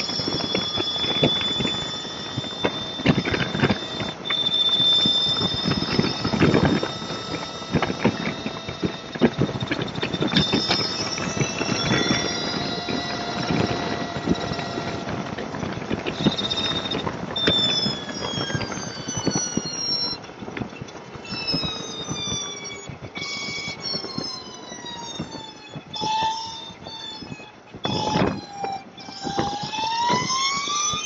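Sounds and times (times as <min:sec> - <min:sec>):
fast rattle of clicks: 0:00.0 - 0:31.0
motorcycle high-pitched whine: 0:00.0 - 0:31.0.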